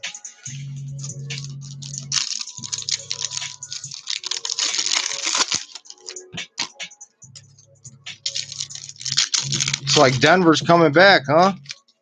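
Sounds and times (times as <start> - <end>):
cards clicking: 1.3 - 6.8, 8.3 - 10.3
foil wrappers crinkling: 1.3 - 6.8, 8.2 - 10.4.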